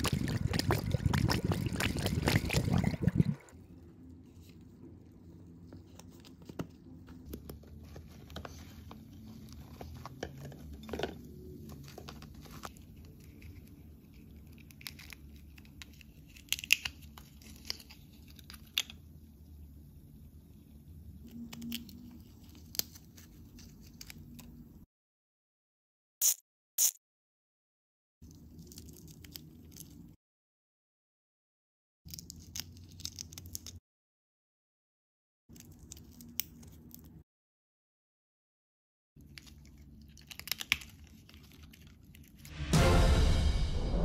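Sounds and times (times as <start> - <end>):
plastic wrappers crinkling and tearing: 11.6 - 18.9, 39.2 - 42.5.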